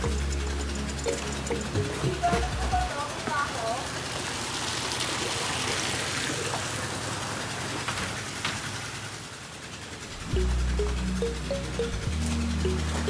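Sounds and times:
music: 0.0 - 3.0, 10.3 - 13.0
water splashing into pool: 3.8 - 9.0.

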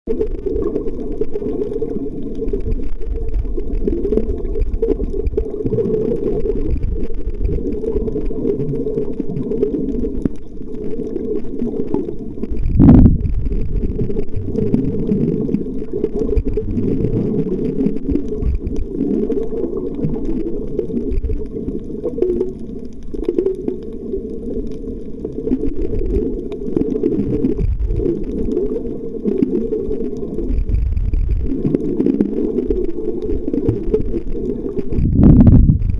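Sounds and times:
muffled underwater water rumble: 0.1 - 35.9
loud thump: 12.7 - 13.2.

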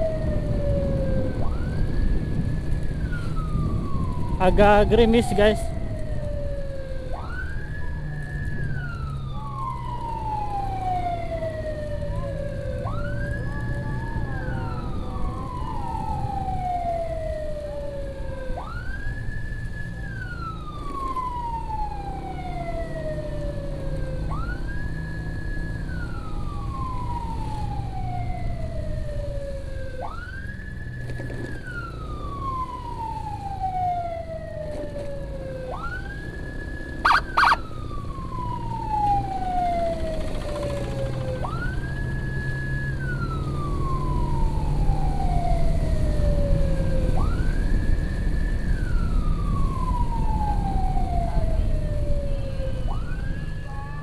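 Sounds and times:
road noise: 0.0 - 54.0
electronic siren wailing: 31.6 - 54.0
motorcycle engine: 35.7 - 38.5, 39.4 - 43.0.

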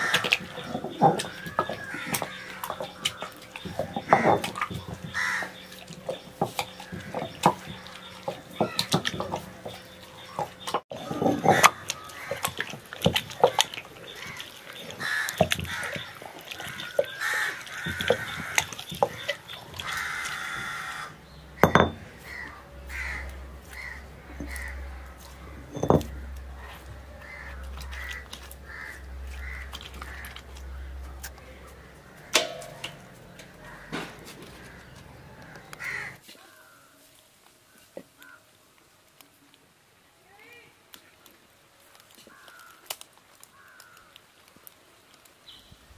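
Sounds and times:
crows cawing: 0.0 - 5.7, 11.4 - 12.8, 13.4 - 21.2, 22.1 - 37.1, 37.7 - 38.5, 42.2 - 44.2
stone roller grinding wet paste: 0.0 - 36.1
stone knocking on stone: 21.6 - 22.0, 25.7 - 26.2.

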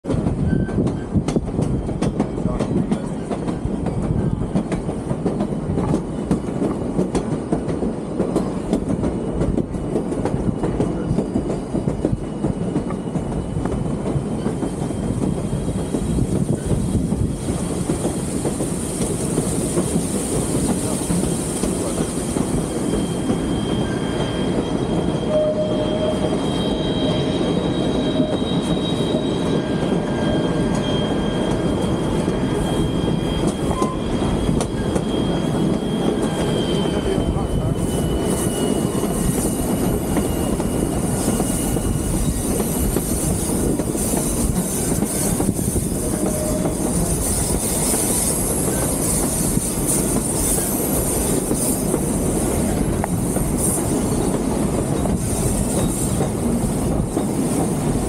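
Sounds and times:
train wheels rumbling on rails: 0.0 - 58.0
rail joint clicks: 0.1 - 27.2, 29.8 - 57.9
wheel flange squeals: 20.8 - 51.9, 55.0 - 56.3.

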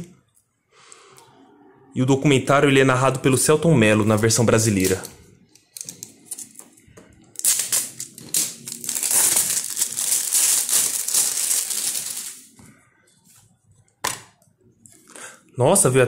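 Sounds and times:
plastic shrink-wrap crinkling: 7.2 - 12.6.

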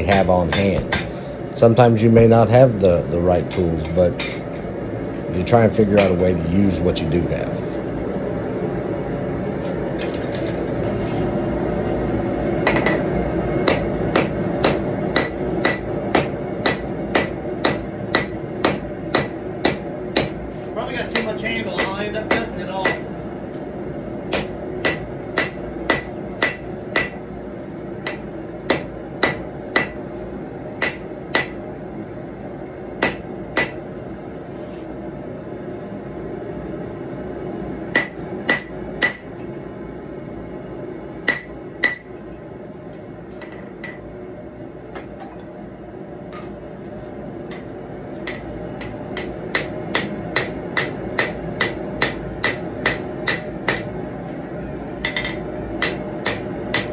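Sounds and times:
hammer striking steel on anvil: 0.0 - 1.2, 6.0 - 6.2, 13.6 - 20.4, 21.2 - 23.1, 24.3 - 27.2, 28.0 - 30.0, 30.8 - 31.6, 33.0 - 33.8, 37.9 - 39.3, 41.2 - 42.1, 47.5 - 53.9, 55.0 - 56.9
gas forge roaring: 0.0 - 30.9.

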